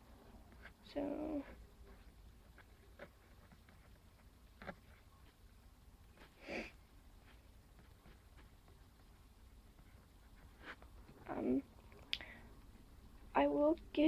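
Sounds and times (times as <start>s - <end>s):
faint clicks: 11.8s - 12.3s.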